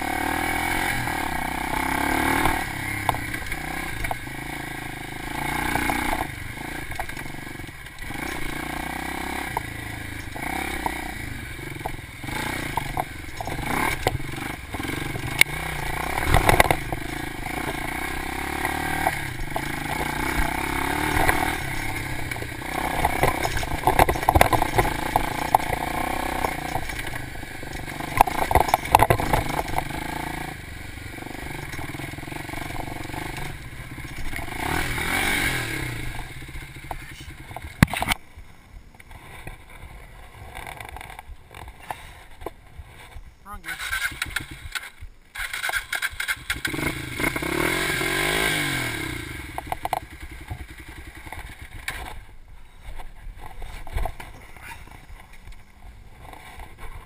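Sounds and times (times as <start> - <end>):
dirt bike engine revving: 0.0 - 38.2, 39.1 - 55.4
bike clattering over bumps: 5.3 - 38.3, 49.4 - 57.0.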